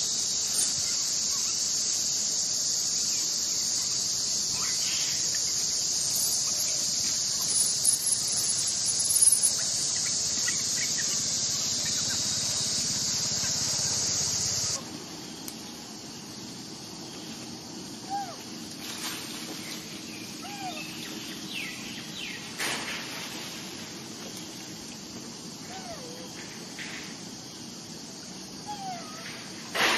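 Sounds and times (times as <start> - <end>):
insect chorus drone: 0.0 - 29.9.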